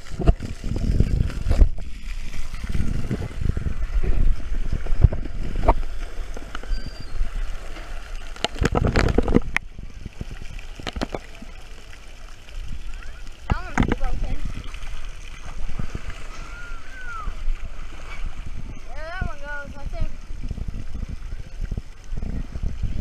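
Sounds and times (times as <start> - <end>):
water sloshing and gurgling: 0.0 - 23.0
knocks and splashes: 7.6 - 11.7, 12.9 - 18.7.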